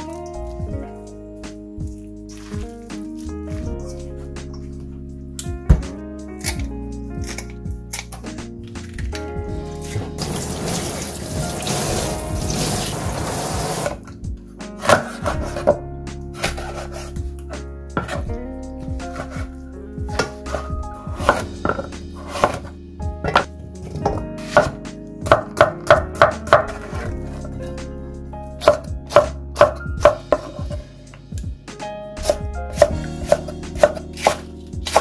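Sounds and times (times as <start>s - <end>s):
knife chopping on wooden board: 14.8s - 15.8s, 16.4s - 17.1s, 18.0s - 18.3s, 19.1s - 19.5s, 20.1s - 27.4s, 28.6s - 30.8s, 32.2s - 35.0s.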